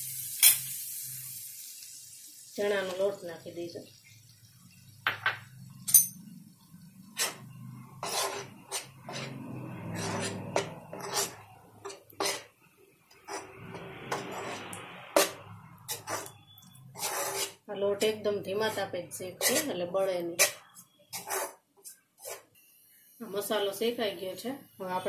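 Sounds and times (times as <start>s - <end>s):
gritty scraping in a pan: 7.1s - 17.7s, 18.6s - 22.5s.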